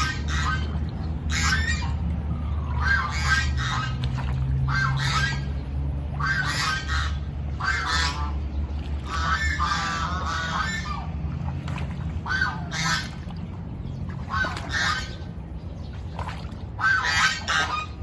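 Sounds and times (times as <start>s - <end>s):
geese honking: 0.0s - 5.6s, 6.2s - 11.2s, 12.2s - 13.3s, 14.2s - 15.4s, 16.8s - 18.0s
steady low hum: 0.0s - 18.0s.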